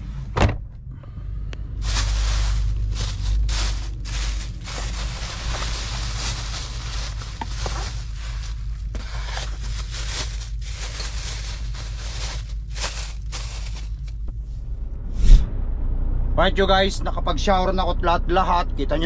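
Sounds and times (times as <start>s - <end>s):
steady low hum: 0.0s - 19.0s
plastic bags rustling: 1.8s - 14.3s.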